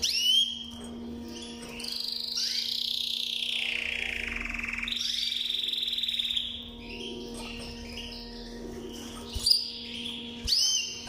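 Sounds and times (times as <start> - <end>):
canary singing: 0.0 - 11.0.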